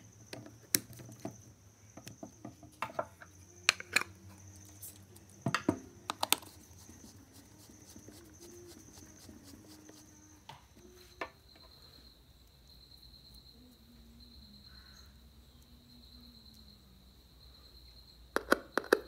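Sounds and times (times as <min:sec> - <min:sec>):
faint steady high tone: 0:03.0 - 0:18.2
faint scratching: 0:06.4 - 0:11.2.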